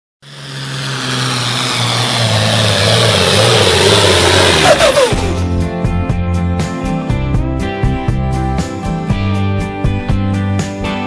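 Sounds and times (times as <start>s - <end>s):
falling whine: 0.2s - 5.6s
tractor engine roaring: 0.2s - 5.9s
country guitar music: 4.6s - 11.0s.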